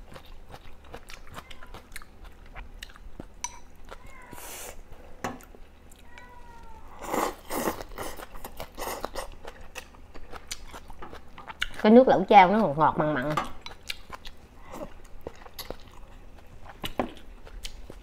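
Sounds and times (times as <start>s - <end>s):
wet chewing: 0.0s - 4.4s, 7.0s - 11.8s, 13.6s - 18.0s.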